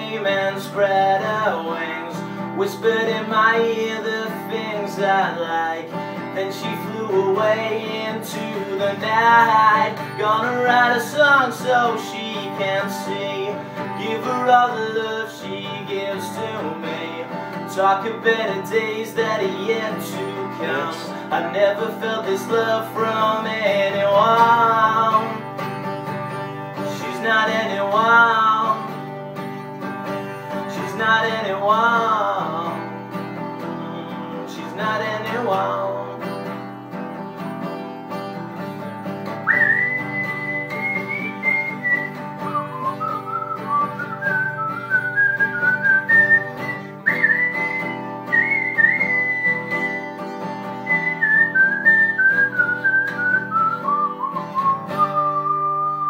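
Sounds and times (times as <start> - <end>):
person singing with vibrato: 0.0 - 25.6, 26.4 - 29.0, 30.3 - 36.4
acoustic guitar strumming: 0.0 - 56.0
high whistled melody: 39.4 - 56.0.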